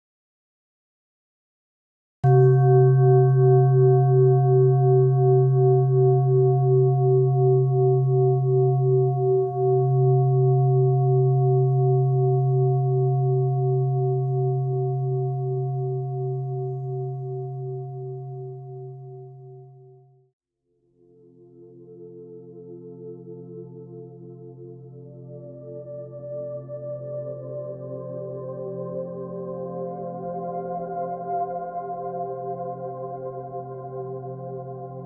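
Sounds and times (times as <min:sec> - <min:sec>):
singing bowl ringing: 0:02.2 - 0:20.0.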